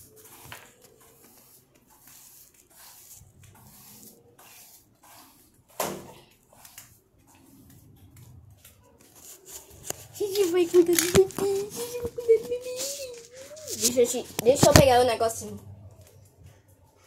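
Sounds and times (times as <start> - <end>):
toys rustling and bumping: 5.7 - 15.4.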